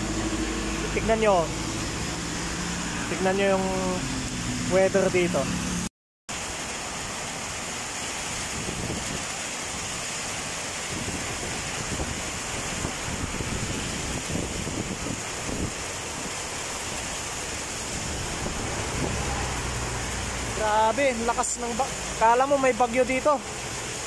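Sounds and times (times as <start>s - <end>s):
heavy rain pouring: 0.0s - 24.0s
wind buffeting microphone: 8.5s - 9.4s, 10.8s - 16.6s, 17.8s - 19.8s.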